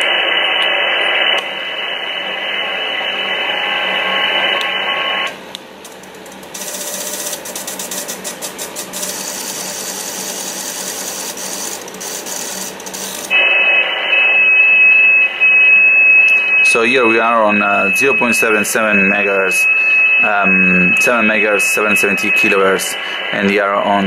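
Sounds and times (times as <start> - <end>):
steady high tone: 0.0 - 5.3, 13.0 - 24.0
radio receiver hiss: 0.0 - 5.4, 13.0 - 14.5, 16.6 - 24.0
steady rushing noise: 17.9 - 24.0.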